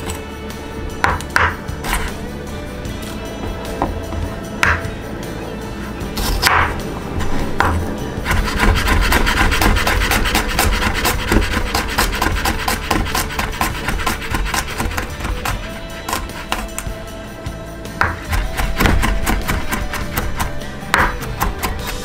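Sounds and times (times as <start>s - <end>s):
knife chopping on wooden board: 1.0s - 2.2s, 3.4s - 4.9s, 6.2s - 16.9s, 18.0s - 22.0s
knife scraping board: 1.8s - 2.2s, 6.1s - 16.9s, 18.0s - 22.0s.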